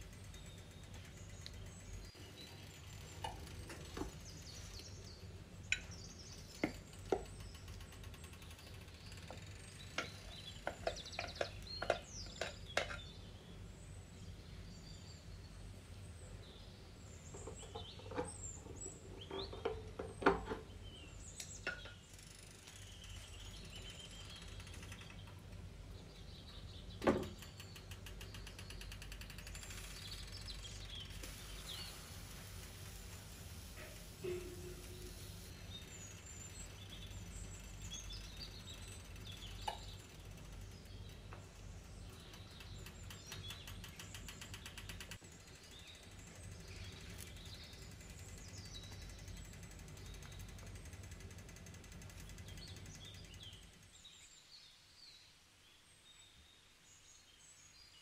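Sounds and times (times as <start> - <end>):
low steady hum: 0.0 - 55.1
faint bird chirps: 20.9 - 50.9.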